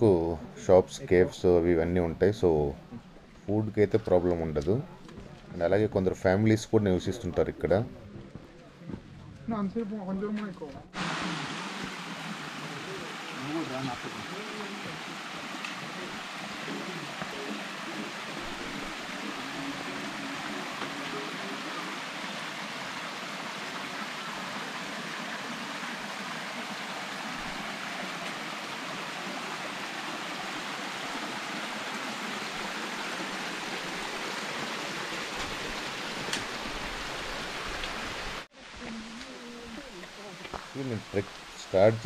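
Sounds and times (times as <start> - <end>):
flowing water rushing: 10.9 - 42.0.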